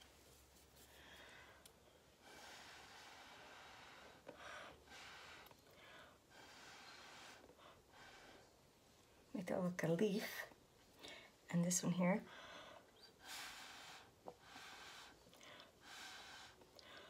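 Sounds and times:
faint puffs of breath through straw: 0:00.8 - 0:08.6, 0:12.3 - 0:17.0.

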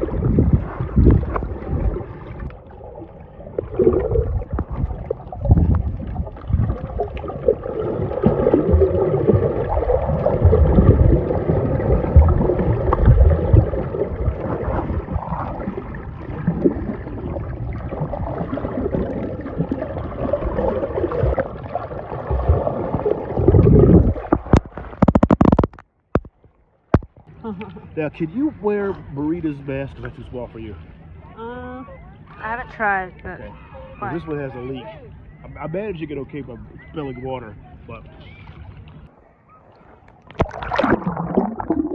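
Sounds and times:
low rumbling: 0:00.0 - 0:25.5
water sloshing and gurgling: 0:00.0 - 0:41.9.

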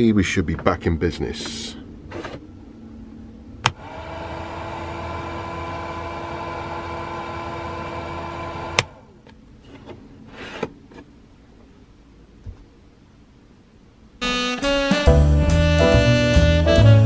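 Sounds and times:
extractor fan motor humming: 0:03.6 - 0:09.0.

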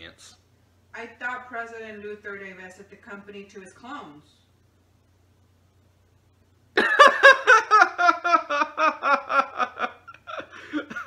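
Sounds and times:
young man laughing: 0:06.8 - 0:11.0.

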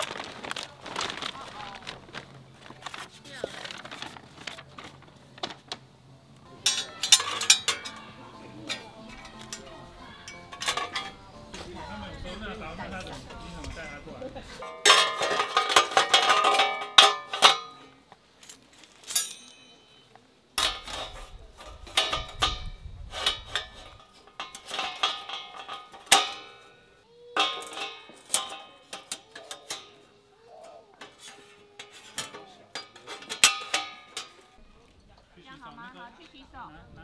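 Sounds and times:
metal panels clinking and clanking: 0:06.5 - 0:13.9, 0:14.6 - 0:20.0, 0:20.6 - 0:34.9.

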